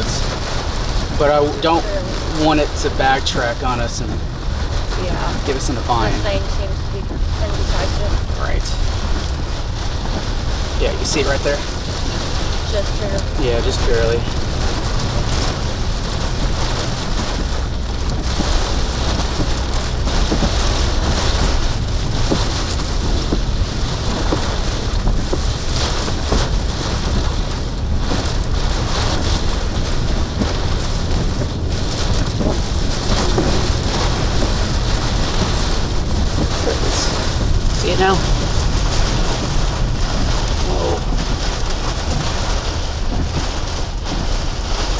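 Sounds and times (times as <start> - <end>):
deep wind rumble: 0.0 - 44.9
heavy rain on vehicle: 0.0 - 44.9
raindrops tapping on glass: 0.0 - 44.9.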